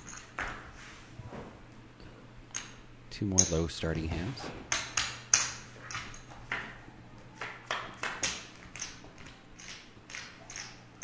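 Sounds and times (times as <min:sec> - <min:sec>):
poker chips clicking: 0:08.2 - 0:10.8.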